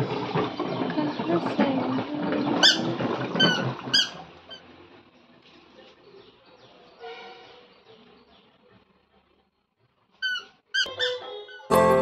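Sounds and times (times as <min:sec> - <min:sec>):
short high-pitched squeaks: 0:02.6 - 0:04.7, 0:10.2 - 0:11.8.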